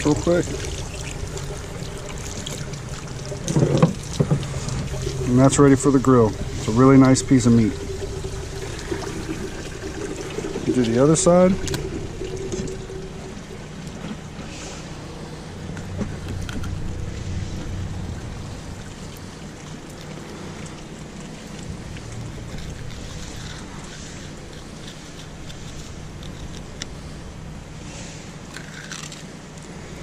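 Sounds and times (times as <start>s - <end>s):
wind rumble on microphone: 15.5s - 19.4s.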